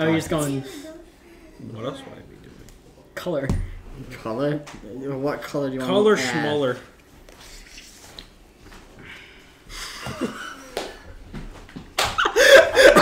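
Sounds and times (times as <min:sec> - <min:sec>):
people laughing loudly: 0:09.8 - 0:10.8, 0:12.0 - 0:13.0.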